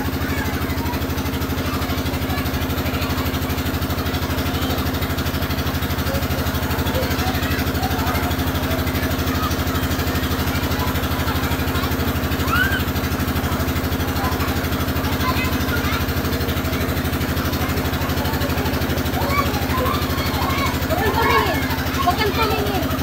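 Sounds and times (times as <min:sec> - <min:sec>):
engine running with fast pulse: 0:00.0 - 0:23.0.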